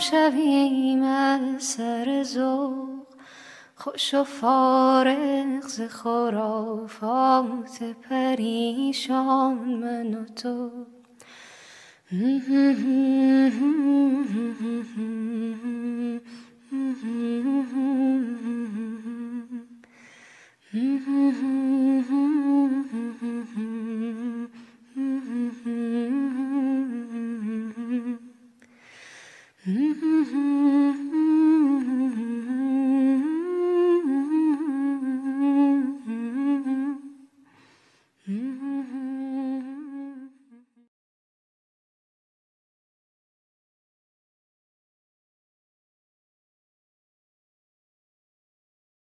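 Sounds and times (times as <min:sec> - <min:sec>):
breaths: 0:03.1 - 0:03.8, 0:11.1 - 0:12.1, 0:16.2 - 0:16.6, 0:19.8 - 0:20.7, 0:24.5 - 0:24.9, 0:28.6 - 0:29.7, 0:37.4 - 0:38.3
person humming melody: 0:12.1 - 0:19.9, 0:20.7 - 0:28.5, 0:29.6 - 0:37.3, 0:38.2 - 0:40.9.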